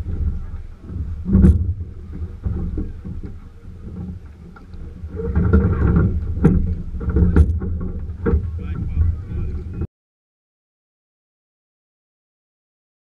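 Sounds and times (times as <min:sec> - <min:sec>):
bumps and knocks of boat: 0:00.0 - 0:09.9
steady low rumble: 0:00.0 - 0:09.9.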